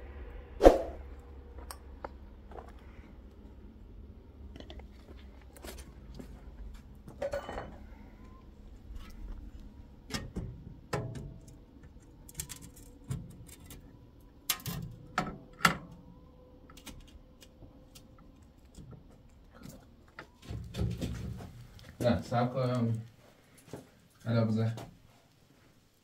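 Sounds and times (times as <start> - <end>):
glass and metal knocks and clinks: 7.2 - 7.8.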